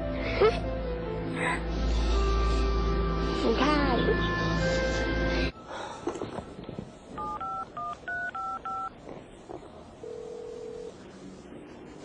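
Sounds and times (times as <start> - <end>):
phone keypad dual-tone beeps: 7.2 - 8.9.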